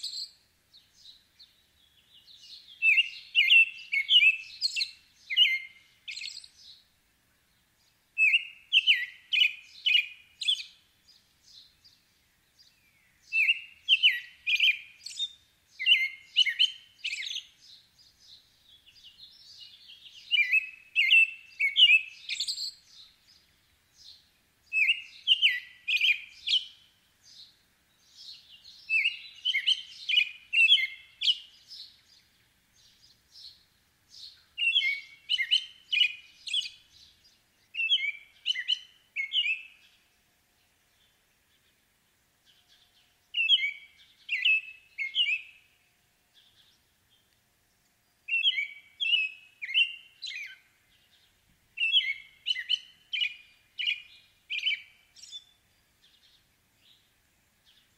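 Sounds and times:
bird singing whistled phrases: 0.0 - 0.4, 2.2 - 6.8, 8.2 - 10.8, 12.7 - 23.1, 24.0 - 27.5, 28.1 - 32.0, 34.2 - 37.1, 37.7 - 39.9, 43.3 - 45.7, 48.3 - 50.7, 51.8 - 57.0.

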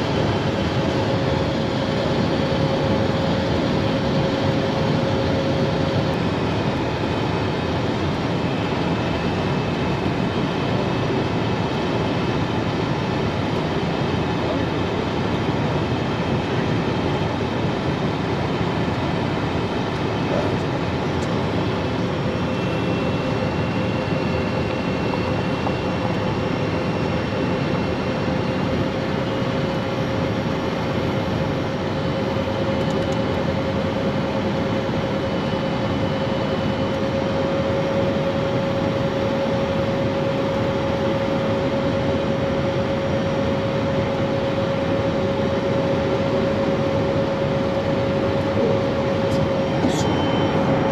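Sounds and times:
jet cockpit airflow and engine noise: 0.0 - 50.9
faint rising whine: 46.7 - 50.9.

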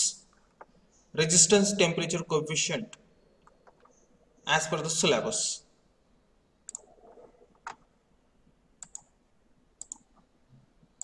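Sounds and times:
computer mouse clicks: 2.9 - 4.0, 6.7 - 7.8, 8.8 - 9.1, 9.8 - 10.3.

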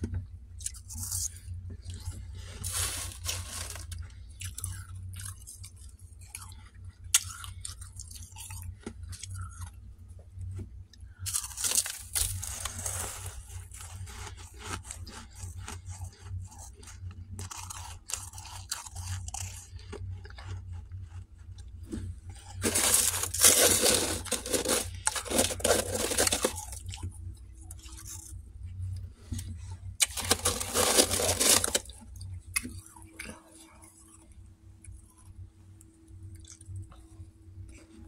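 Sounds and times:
frost crunching and scraping: 0.6 - 6.5, 11.2 - 28.4, 29.0 - 34.2.

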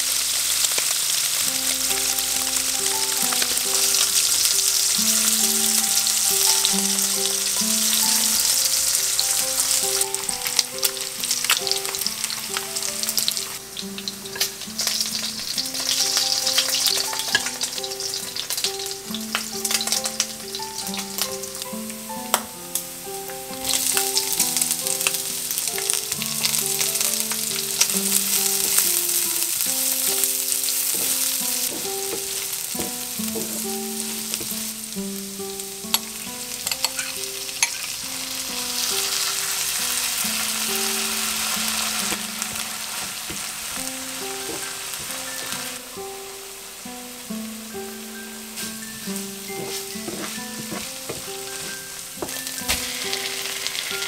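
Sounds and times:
meat sizzling in a frying pan: 0.0 - 54.0
vegetables sizzling while stirred: 0.0 - 54.0
metal tongs clicking: 36.7 - 37.9.

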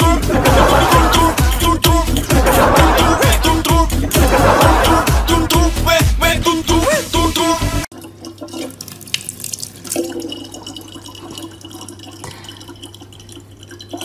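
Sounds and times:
water trickling from tap into jug: 7.9 - 14.0.

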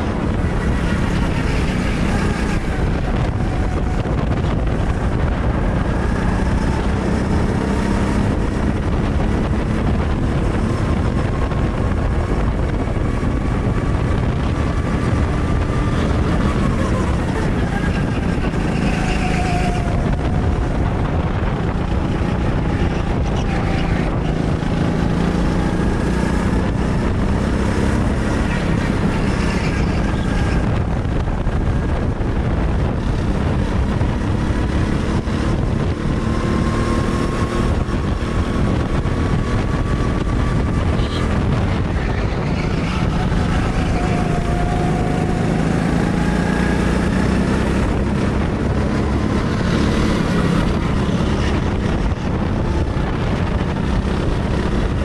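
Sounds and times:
go-kart engine revving: 0.0 - 55.0
wind on microphone: 0.0 - 55.0.

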